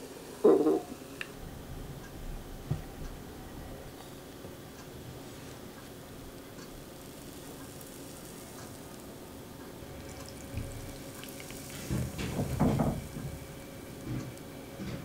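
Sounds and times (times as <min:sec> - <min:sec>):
liquid pouring into a glass: 0:07.4 - 0:13.4.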